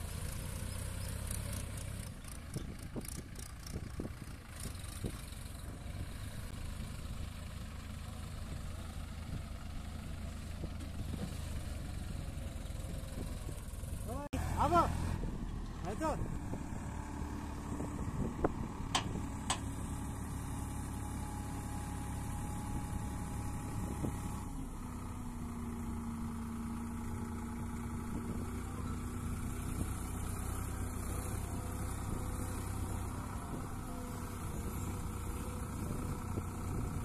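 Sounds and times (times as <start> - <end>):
tractor diesel engine running: 0.0 - 37.0
hydraulics raising trailer bed: 17.8 - 20.0.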